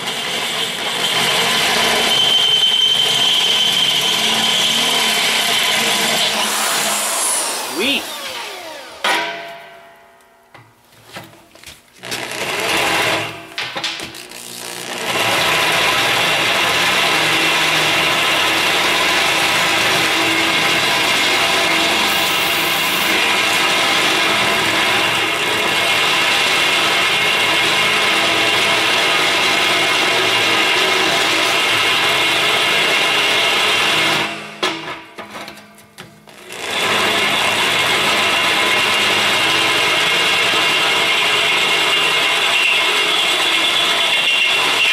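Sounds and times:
drill press drilling steel: 0.0 - 9.3, 12.0 - 34.5, 36.5 - 44.9.

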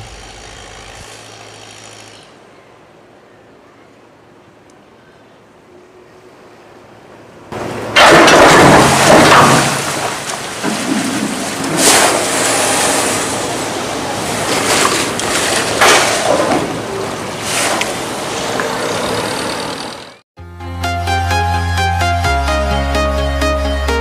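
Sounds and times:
water rushing through gap: 7.6 - 19.1
sluice gate knocks: 8.0 - 12.2.

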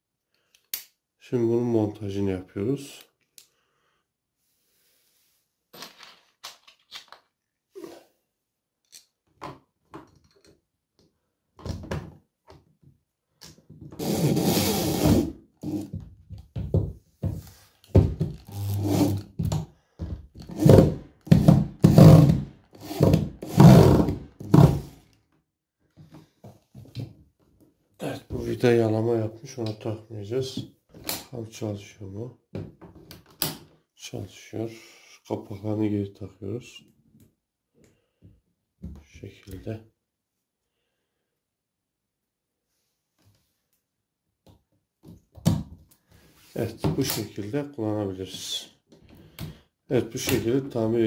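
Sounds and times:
electric drill driving screws: 18.4 - 19.2.

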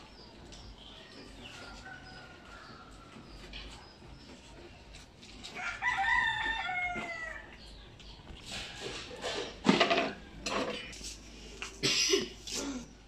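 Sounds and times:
rooster crowing: 5.6 - 7.5.

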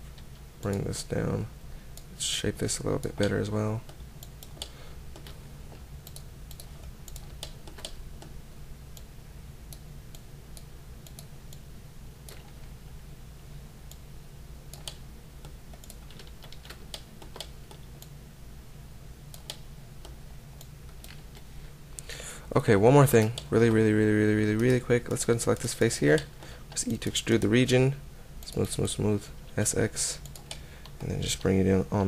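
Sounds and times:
steady low hum: 0.0 - 32.0
keyboard and mouse clicks: 3.0 - 8.4, 12.2 - 12.7, 14.7 - 18.1, 19.3 - 21.5, 30.2 - 31.5.

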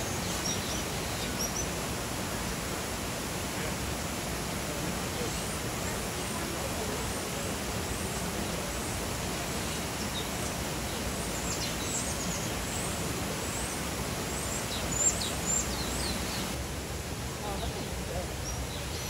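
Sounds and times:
small birds chirping: 0.0 - 2.7, 5.0 - 16.6, 17.4 - 19.0.

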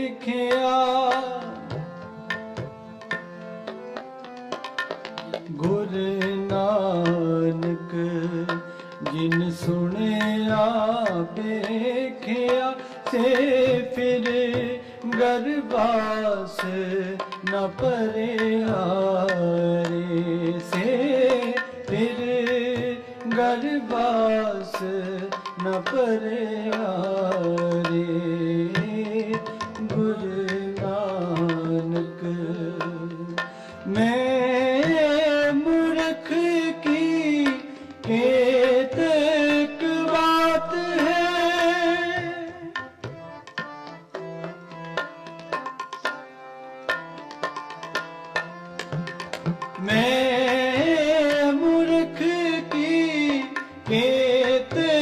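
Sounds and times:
harmonium: 0.0 - 55.0
tabla: 0.0 - 55.0
person singing: 5.4 - 43.0, 49.8 - 55.0.

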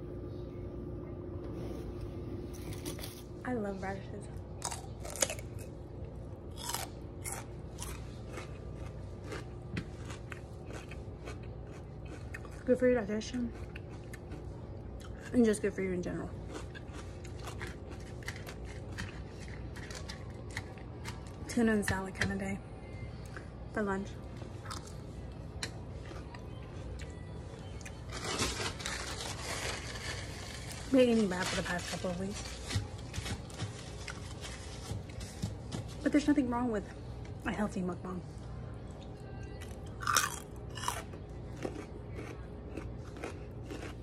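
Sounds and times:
crunchy chewing: 4.6 - 12.7, 13.3 - 15.4, 16.3 - 21.4, 24.6 - 30.9, 39.6 - 44.0
crunching: 6.5 - 12.5, 40.0 - 44.0.

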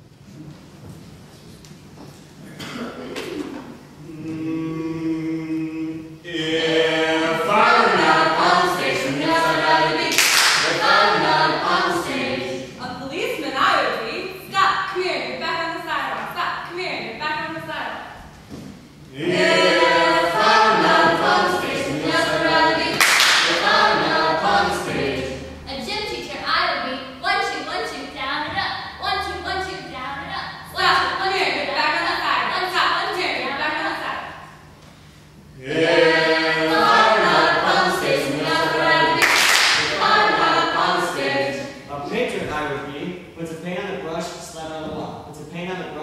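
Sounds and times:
group of voices singing: 4.0 - 13.0, 19.1 - 25.8, 35.6 - 42.2
sharp hand clap: 10.1 - 10.8, 22.9 - 23.6, 39.2 - 39.9.

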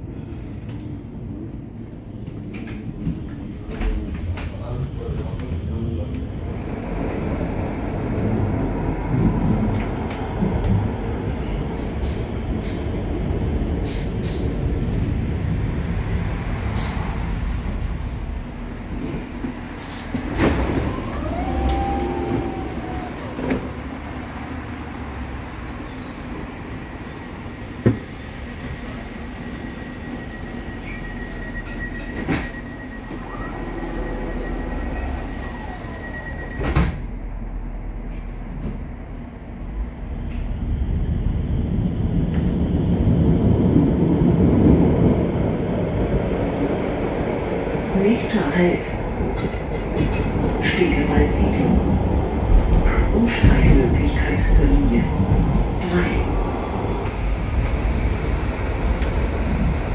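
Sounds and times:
wheels rumbling on rails: 0.0 - 59.9
wheel squeal: 30.2 - 36.8.

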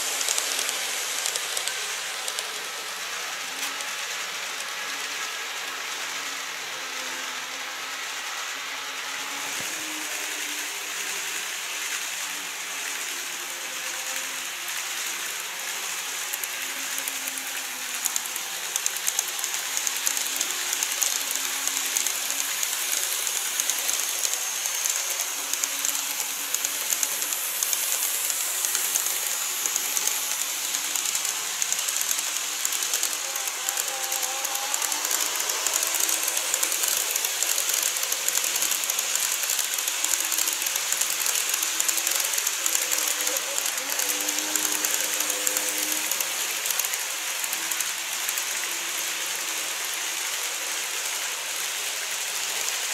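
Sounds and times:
model train motor hum: 0.0 - 52.9.

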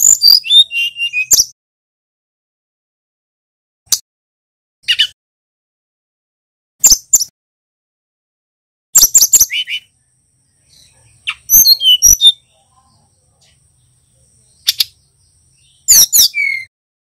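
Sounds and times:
bird chirping and whistling: 0.0 - 1.6, 4.8 - 5.2, 9.0 - 9.9, 10.7 - 12.4, 14.6 - 15.0, 15.6 - 16.7.

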